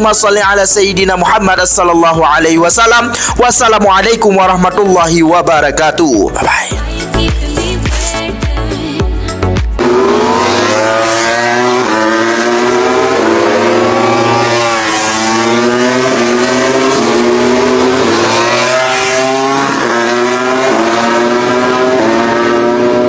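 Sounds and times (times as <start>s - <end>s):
motorcycle engines revving: 9.8s - 23.0s.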